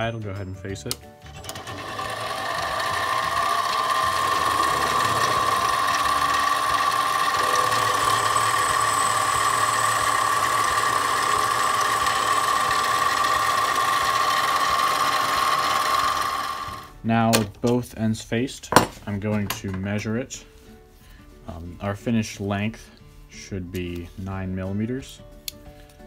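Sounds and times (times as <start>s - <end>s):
lathe running with high whine: 1.4s - 16.9s.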